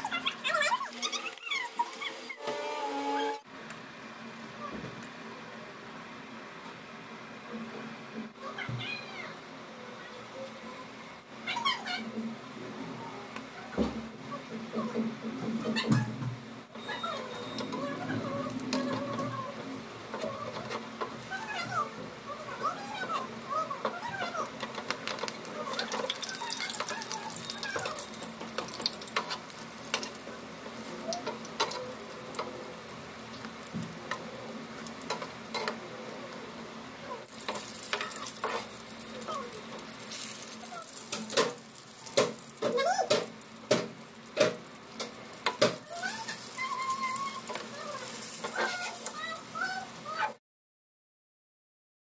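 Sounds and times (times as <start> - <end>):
oil sizzling: 16.7 - 50.3.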